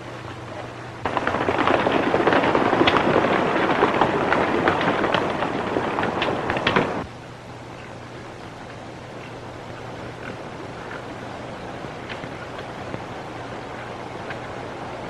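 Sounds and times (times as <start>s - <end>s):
horses galloping: 0.0s - 7.0s, 7.8s - 15.0s.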